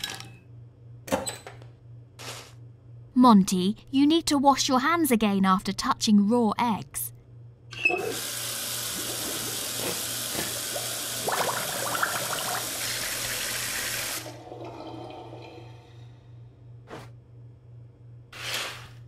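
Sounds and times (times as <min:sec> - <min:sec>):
tap running: 0:08.1 - 0:14.8.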